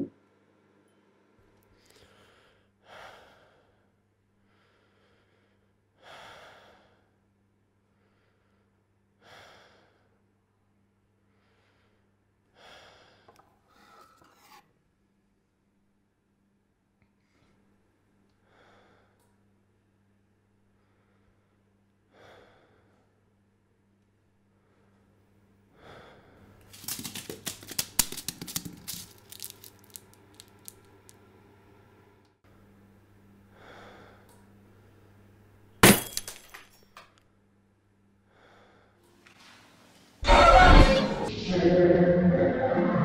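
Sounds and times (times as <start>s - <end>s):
crackling and clicking: 26.6s - 31.2s.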